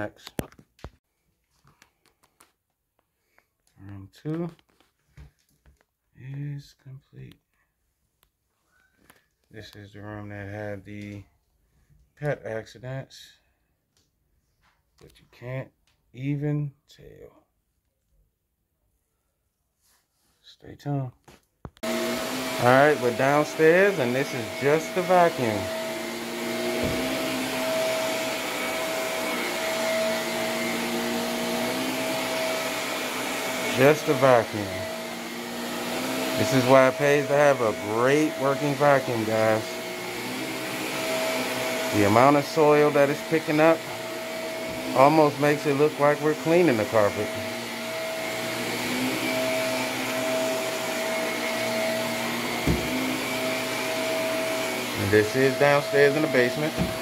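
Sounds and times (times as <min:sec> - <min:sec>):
vacuum cleaner running over carpet: 0:21.8 - 0:57.0.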